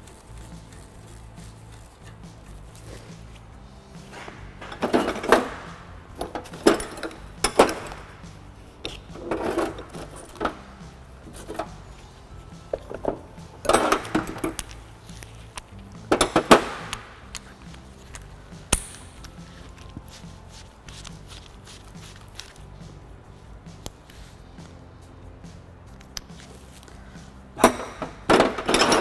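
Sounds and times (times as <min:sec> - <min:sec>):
faint background music: 0:00.0 - 0:29.0
metal tools clinking and rattling: 0:04.1 - 0:19.9, 0:27.6 - 0:29.0.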